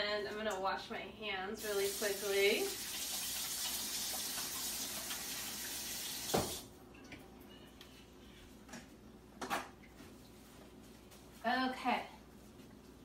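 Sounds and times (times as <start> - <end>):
faucet running: 1.6 - 6.7
faucet turned off thump: 6.2 - 6.6.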